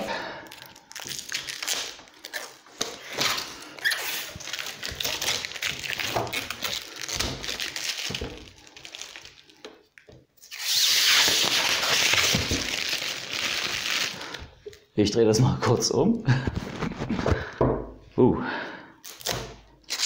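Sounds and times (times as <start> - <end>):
plastic film crackling: 0.0 - 14.8.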